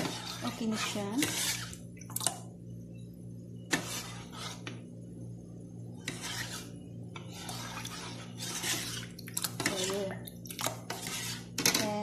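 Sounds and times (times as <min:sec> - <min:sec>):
spoon scraping ceramic bowl: 0:03.7 - 0:04.8, 0:06.0 - 0:11.9.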